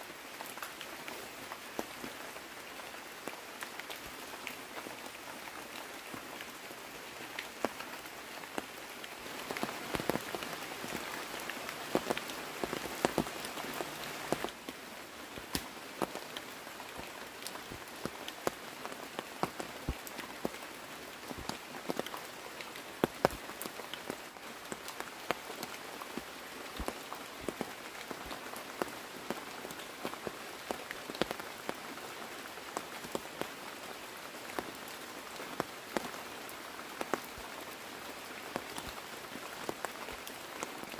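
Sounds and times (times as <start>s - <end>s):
steady rain hissing: 0.0s - 40.9s
raindrops tapping on surface: 8.5s - 20.6s, 21.2s - 31.4s, 35.4s - 36.2s.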